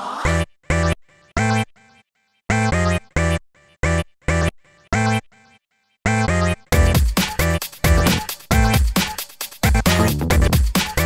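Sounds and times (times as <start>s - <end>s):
electronic music chord stabs: 9.8s - 10.6s.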